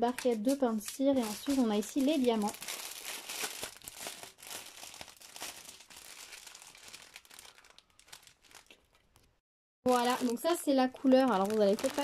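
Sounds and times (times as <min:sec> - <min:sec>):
plastic packaging crinkling: 0:00.1 - 0:09.3, 0:09.9 - 0:12.0.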